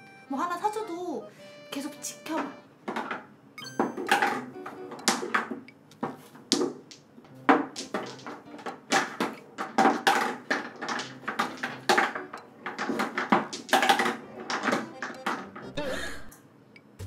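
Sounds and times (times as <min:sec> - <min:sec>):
pool balls clacking: 0:02.4 - 0:15.8.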